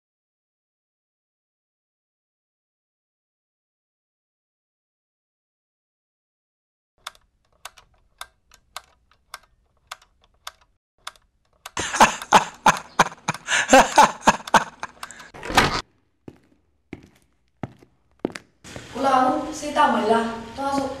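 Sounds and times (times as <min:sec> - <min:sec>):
sharp ticking clicks: 0:07.0 - 0:15.4
man laughing wildly: 0:11.8 - 0:15.4.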